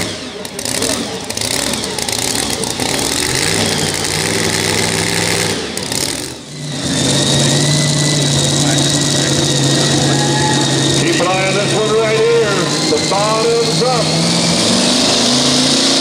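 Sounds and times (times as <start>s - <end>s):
supercharged truck engine idling: 0.0s - 16.0s
high whine: 6.5s - 15.7s.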